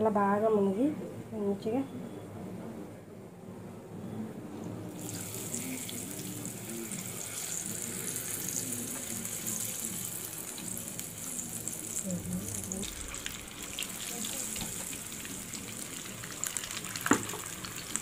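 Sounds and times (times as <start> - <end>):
deep-frying sizzle in oil: 4.9 - 18.0.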